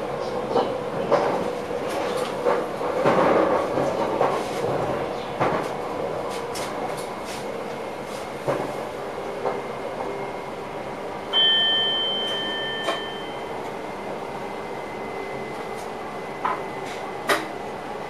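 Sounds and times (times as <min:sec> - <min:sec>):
train running: 0:00.0 - 0:18.0
two-tone chime: 0:11.3 - 0:13.5.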